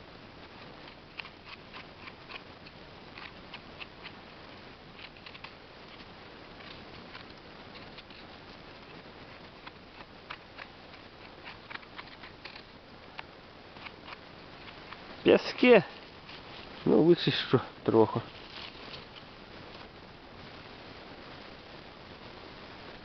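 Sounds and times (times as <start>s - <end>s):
knife scraping mushroom stem: 9.6s - 12.7s.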